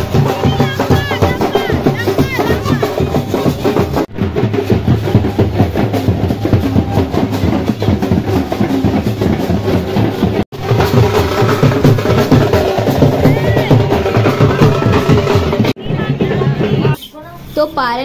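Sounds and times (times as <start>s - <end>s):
drummers beating drums: 0.0s - 17.0s.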